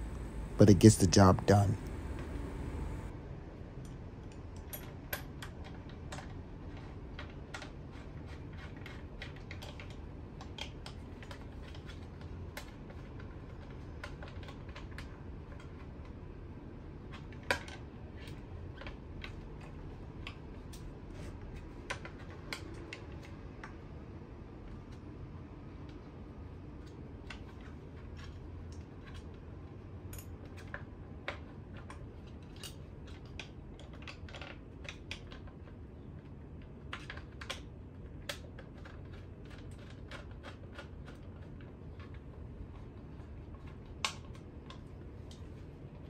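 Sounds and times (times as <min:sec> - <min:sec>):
low steady hum: 0:00.0 - 0:08.0
small clicks and taps of parts: 0:30.1 - 0:45.6.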